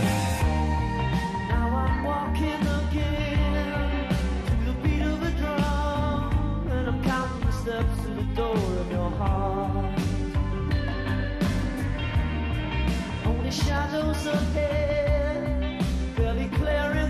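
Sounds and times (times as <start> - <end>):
rock song with singing: 0.0 - 17.0.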